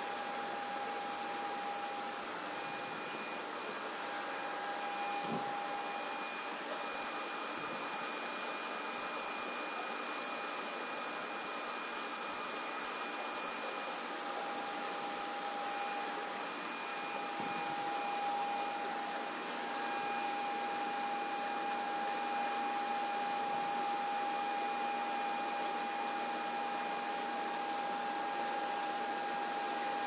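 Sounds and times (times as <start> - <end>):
high-pitched whine: 0.0 - 9.6, 13.7 - 28.1
steady hiss: 0.0 - 26.5.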